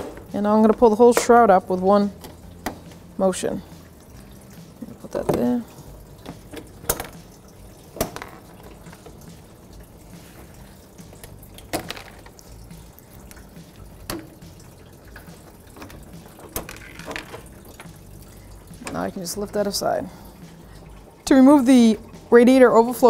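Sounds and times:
coolant trickling into bucket: 0:00.0 - 0:23.0.

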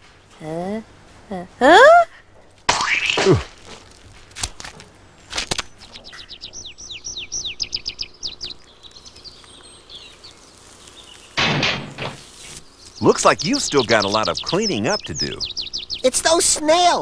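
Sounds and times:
high downward-sliding chirps: 0:12.1 - 0:16.6.

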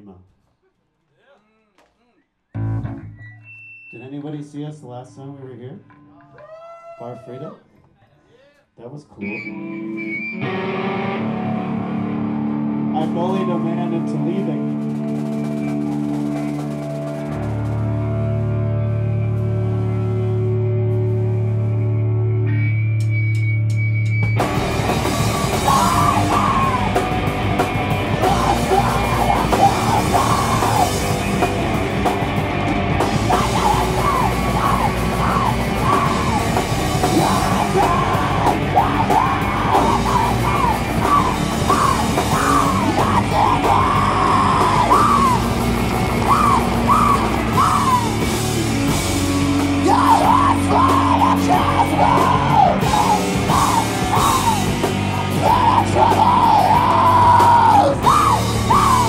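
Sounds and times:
person yelling: 0:06.3 - 0:07.7, 0:25.5 - 0:27.1, 0:28.2 - 0:31.2, 0:33.1 - 0:48.4, 0:49.7 - 0:59.0
heavy rock band playing: 0:10.2 - 0:59.0.

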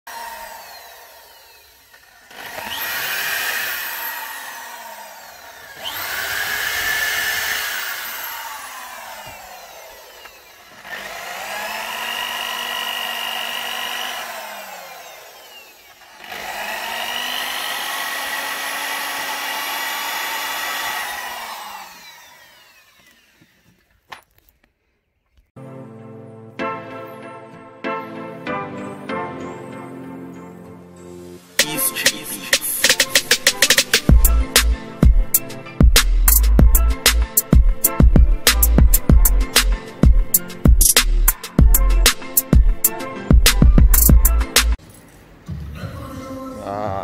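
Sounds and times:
power tool motor whining: 0:00.1 - 0:24.4.

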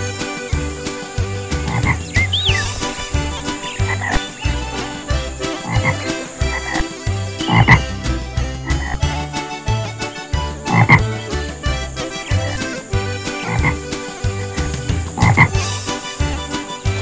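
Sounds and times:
frog croaking: 0:01.6 - 0:08.0, 0:08.6 - 0:09.2, 0:10.6 - 0:15.8.

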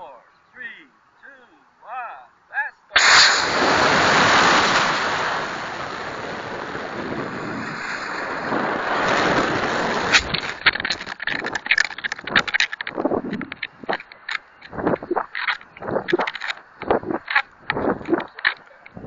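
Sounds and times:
rocket exhaust rush: 0:03.0 - 0:10.6.

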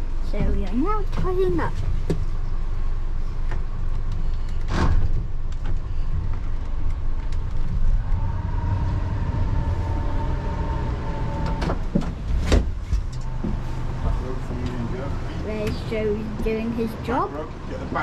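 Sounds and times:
high whine: 0:07.7 - 0:11.8
boat engine running: 0:07.8 - 0:11.9.

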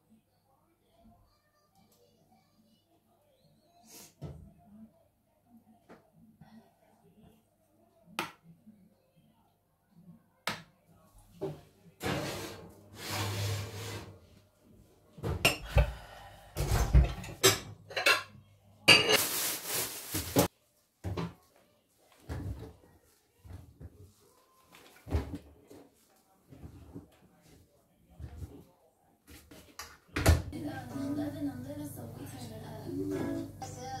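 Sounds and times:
dishes and cutlery clinking: 0:16.6 - 0:19.4.

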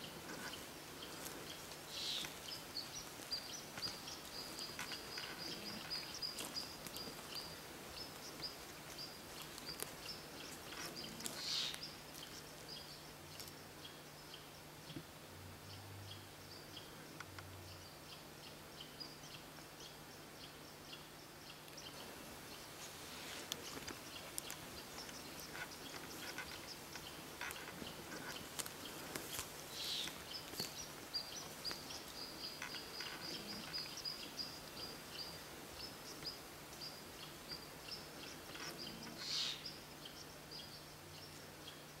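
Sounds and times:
footsteps on dry forest litter: 0:00.0 - 0:12.5, 0:22.2 - 0:33.0
small birds chirping: 0:00.0 - 0:42.0.

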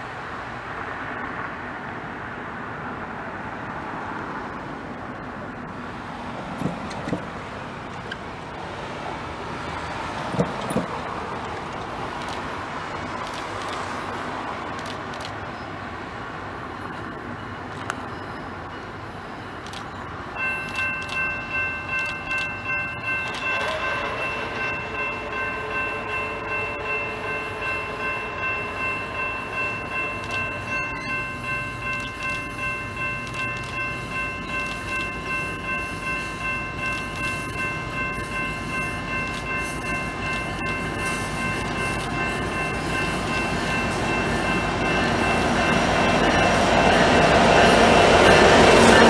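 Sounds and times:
train rumble: 0:00.0 - 0:49.0
locomotive air horn chord: 0:23.2 - 0:30.8.

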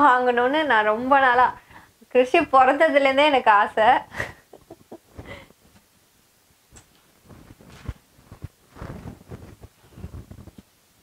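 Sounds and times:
soft rustling of clothes: 0:06.6 - 0:11.0.

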